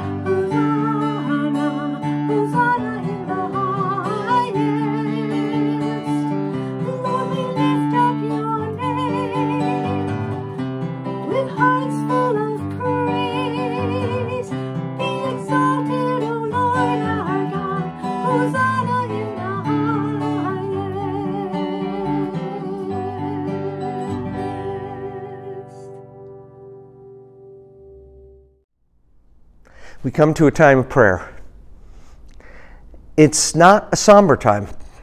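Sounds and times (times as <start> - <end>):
woman singing: 0.0 - 10.5, 11.1 - 26.2
strummed acoustic guitar: 0.0 - 28.6.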